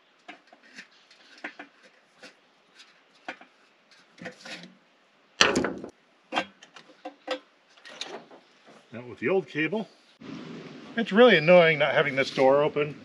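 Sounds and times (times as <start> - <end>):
loud metal clunk: 5.4 - 6.6.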